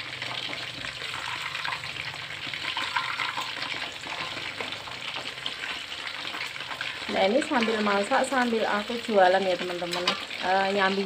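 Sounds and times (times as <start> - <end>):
chicken sizzling in hot oil: 0.0 - 11.0
metal spatula stirring: 0.2 - 8.6.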